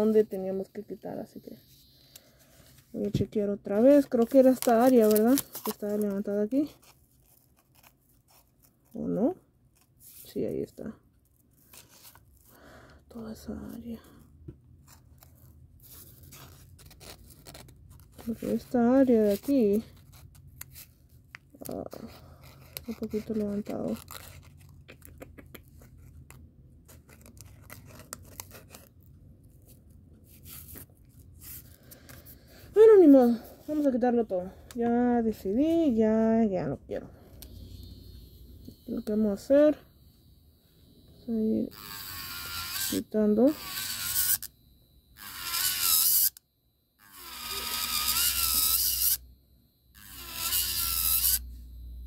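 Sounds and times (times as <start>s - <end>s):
low steady hum: 0.0s - 52.0s
electric nail drill grinding: 37.4s - 39.7s, 40.9s - 46.4s, 47.0s - 49.3s, 49.9s - 52.0s.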